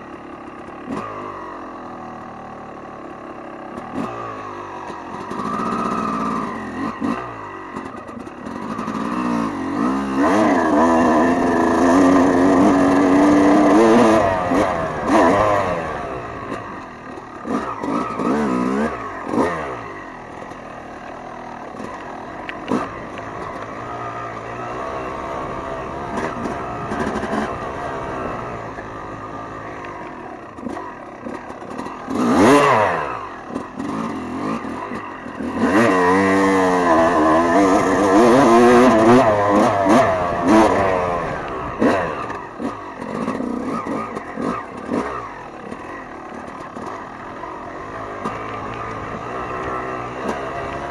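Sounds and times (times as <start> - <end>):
dirt bike engine revving: 0.0 - 50.9.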